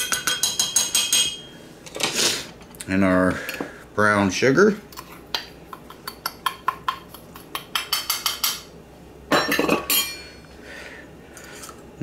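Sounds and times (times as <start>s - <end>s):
metal spoon clinking in bowl: 0.0s - 1.6s.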